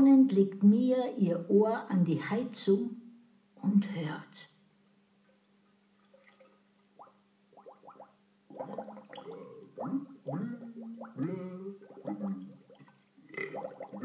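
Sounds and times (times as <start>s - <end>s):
water gurgling in radiator: 6.1s - 14.0s.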